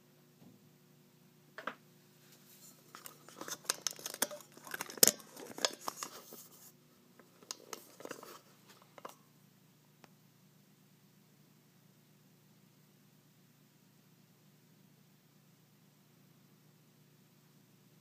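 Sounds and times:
clicks and rustles of metal parts: 0:02.6 - 0:06.6, 0:07.2 - 0:09.2.

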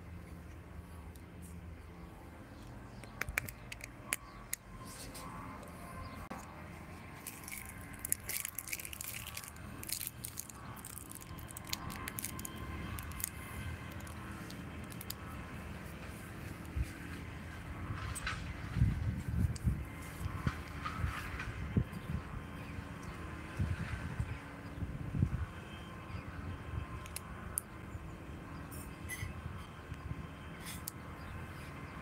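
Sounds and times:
rustling and crackling: 0:06.3 - 0:21.7.

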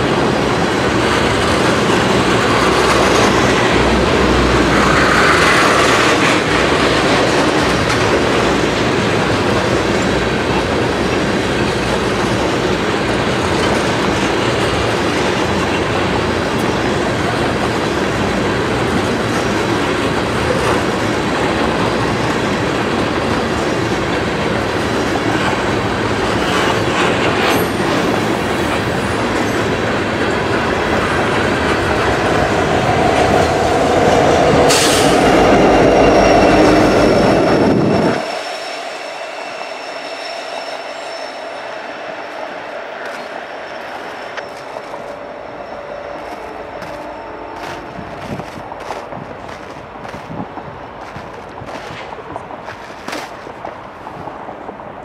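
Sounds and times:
freight train wheels on rail: 0:00.0 - 0:55.0.

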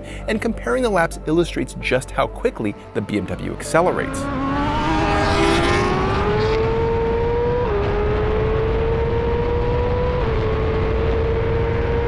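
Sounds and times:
motorcycle engine accelerating: 0:03.8 - 0:12.0.

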